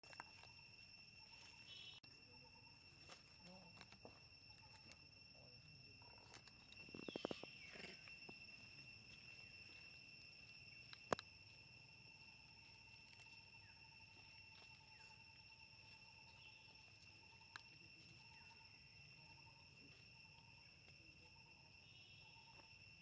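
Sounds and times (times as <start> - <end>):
high-pitched insect chorus: 0.0 - 23.0
rustles: 6.0 - 18.6.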